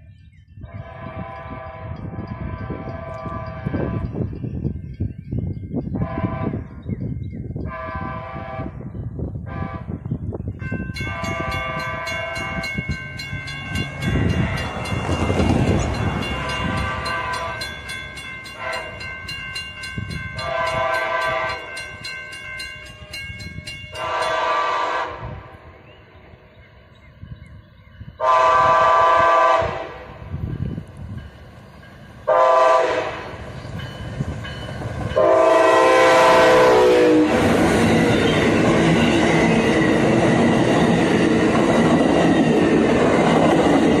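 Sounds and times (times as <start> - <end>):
train rumbling on rails: 0.0 - 44.0
locomotive horn blasts: 0.7 - 4.2, 6.0 - 6.7, 7.6 - 8.8, 9.4 - 10.0, 11.0 - 12.9, 16.3 - 17.8, 18.5 - 19.1, 20.4 - 21.8, 23.9 - 25.5, 28.2 - 30.2, 32.3 - 33.4, 35.2 - 37.5.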